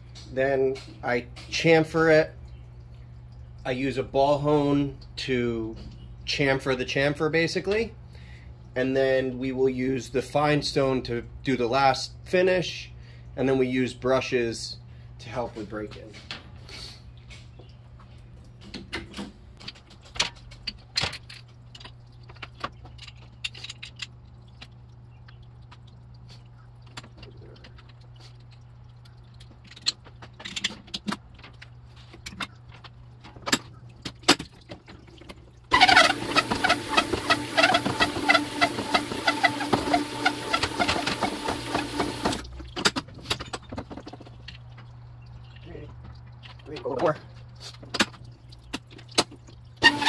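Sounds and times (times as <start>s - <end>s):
honing machine rattling grind: 35.7s - 42.4s
low hum: 35.7s - 42.8s.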